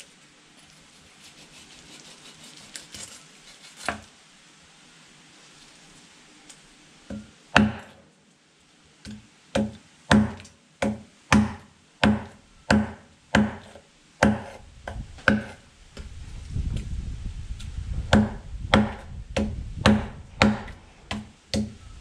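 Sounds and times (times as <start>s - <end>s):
knife chopping fish on wooden block: 9.6s - 14.6s, 15.2s - 15.6s, 18.1s - 21.7s.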